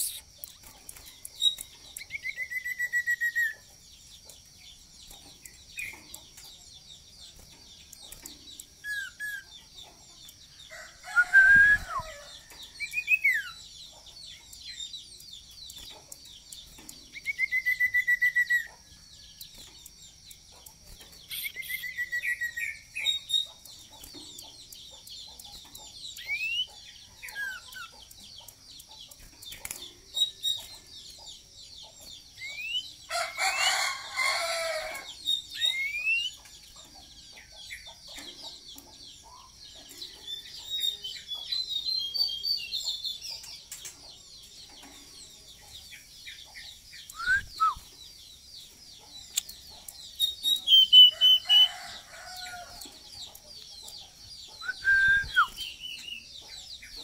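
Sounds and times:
bird trills and whistles: 0.0s - 0.3s, 1.4s - 3.6s, 8.8s - 9.5s, 11.1s - 12.2s, 17.1s - 18.7s, 21.3s - 23.6s, 26.2s - 27.9s, 32.4s - 32.9s, 35.3s - 36.4s, 47.1s - 47.9s, 50.2s - 51.7s, 54.5s - 56.2s
rooster crowing: 10.7s - 12.5s, 33.1s - 35.2s, 51.0s - 52.8s.

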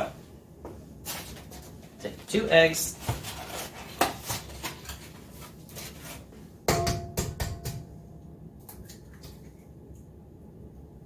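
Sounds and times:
eggs tapping on a metal bowl: 6.7s - 8.0s.

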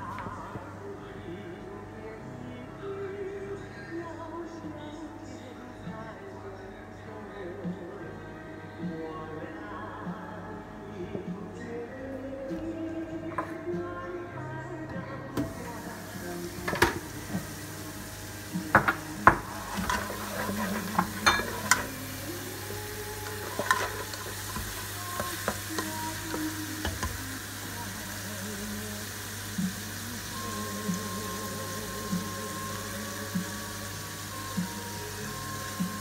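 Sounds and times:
meat sizzling in oil: 15.6s - 36.0s
spatula stirring and scraping: 19.3s - 26.4s.

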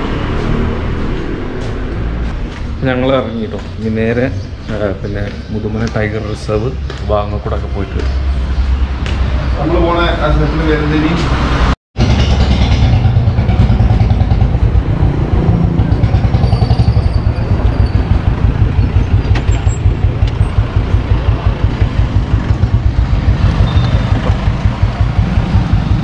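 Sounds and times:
motorcycle engine pulsing: 12.0s - 26.0s.

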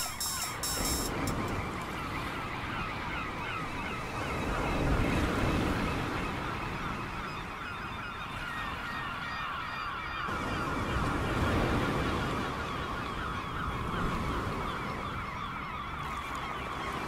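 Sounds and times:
surf-like synth rush: 0.0s - 1.5s
synth gliding cries: 0.0s - 1.6s.

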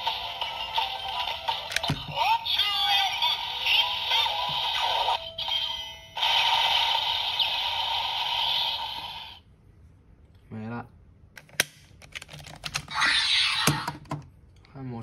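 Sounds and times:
toy electronic music and effects: 0.0s - 9.4s.

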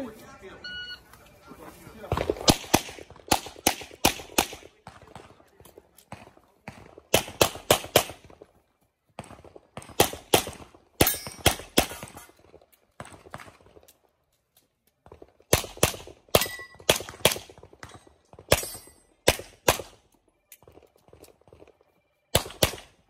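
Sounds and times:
pistol shots: 2.1s - 5.5s, 6.1s - 8.4s, 9.2s - 12.3s, 15.5s - 20.0s, 22.3s - 23.0s.

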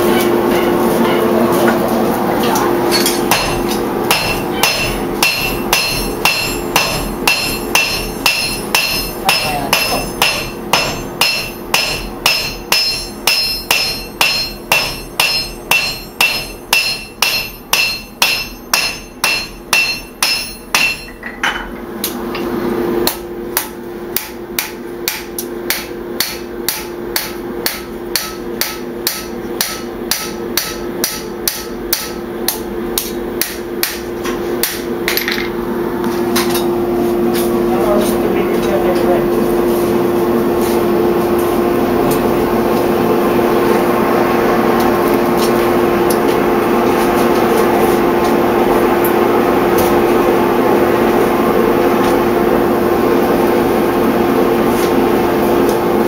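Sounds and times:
steady hum: 0.0s - 56.0s
hammer ringing on anvil: 2.9s - 21.7s, 23.1s - 34.0s.

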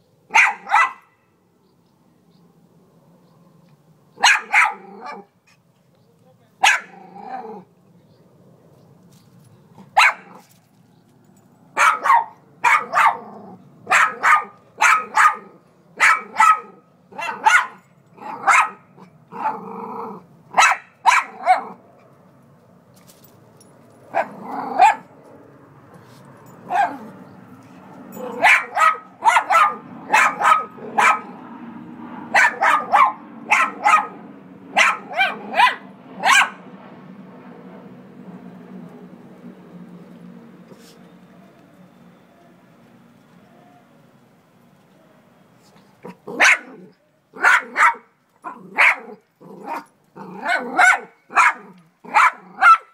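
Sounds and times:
dog barking: 0.3s - 1.2s, 4.2s - 5.3s, 6.6s - 7.0s, 10.0s - 10.4s, 11.8s - 18.9s, 20.5s - 21.8s, 24.1s - 25.1s, 26.6s - 27.2s, 28.2s - 31.4s, 32.3s - 36.6s, 46.1s - 52.9s
dog growling: 6.9s - 7.7s, 13.1s - 13.6s, 18.2s - 20.3s, 24.1s - 25.0s, 48.5s - 50.8s.

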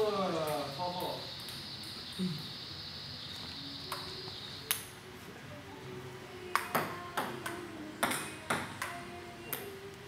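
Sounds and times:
table tennis ball hits: 6.6s - 9.6s.

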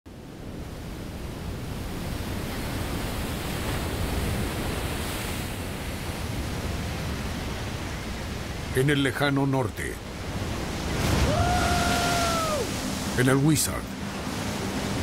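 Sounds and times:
rough water breaking: 10.0s - 15.0s.

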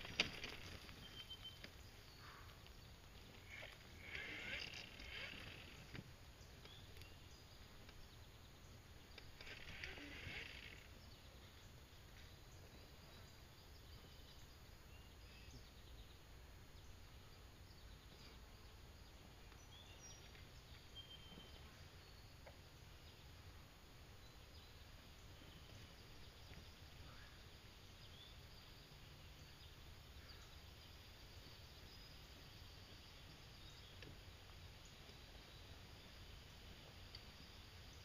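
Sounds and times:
faint high chirps: 0.4s - 2.7s, 18.0s - 22.6s.

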